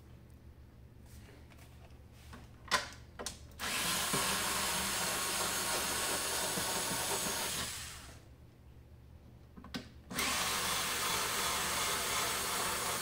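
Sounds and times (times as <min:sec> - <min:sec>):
cordless screwdriver running: 0:10.2 - 0:13.0.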